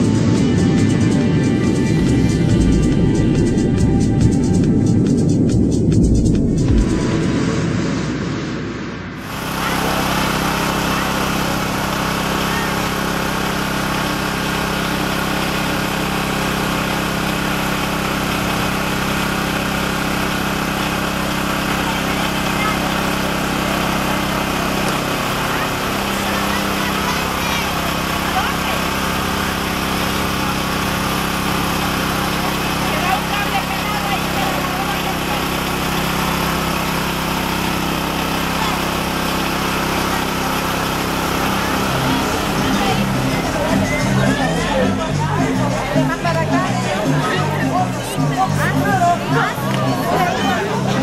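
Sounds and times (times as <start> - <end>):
engine idling: 0.0 - 8.3, 8.9 - 51.0.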